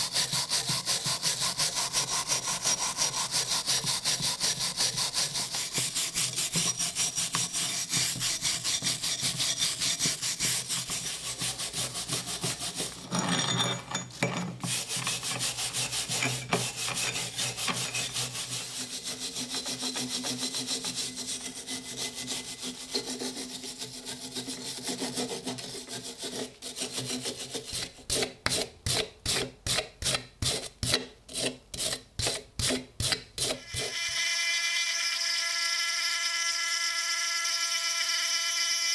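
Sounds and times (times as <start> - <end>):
file scraping on steel: 0.0 - 34.2.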